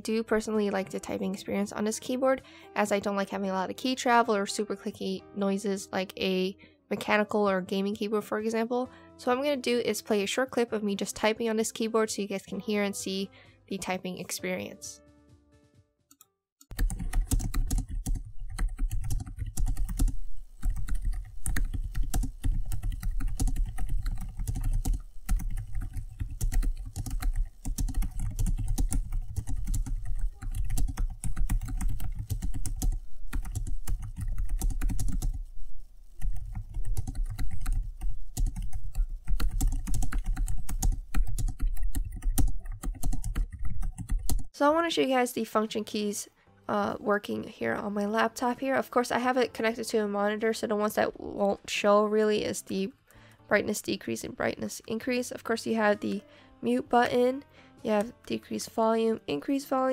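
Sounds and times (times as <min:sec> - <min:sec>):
typing on keyboard: 0:16.7 - 0:35.5, 0:36.2 - 0:44.5.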